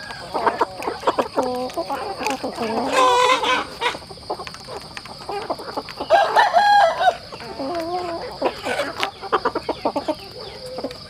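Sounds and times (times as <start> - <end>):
beaks pecking at a trough: 0.0 - 11.0
chicken drawn-out call: 0.0 - 11.0
chickens clucking: 0.0 - 11.0.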